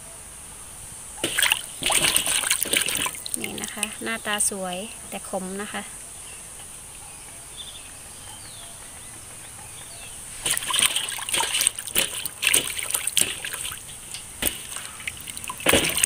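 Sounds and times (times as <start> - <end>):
water splashing in metal basin: 1.2 - 4.2, 10.4 - 16.0.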